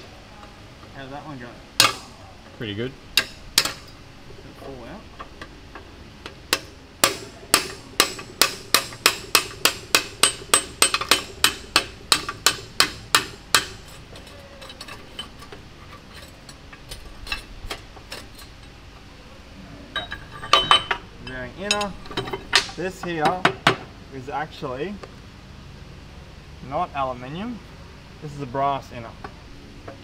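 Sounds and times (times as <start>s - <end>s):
hammer striking metal: 1.8s - 2.1s, 3.2s - 3.9s, 6.5s - 13.9s.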